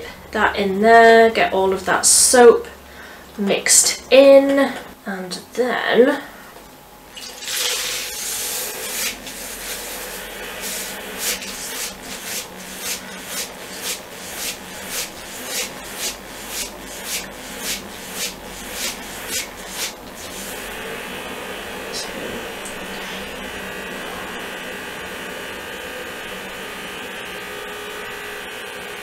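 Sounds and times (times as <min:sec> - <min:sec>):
brush spinning in water: 0:07.1 - 0:24.5.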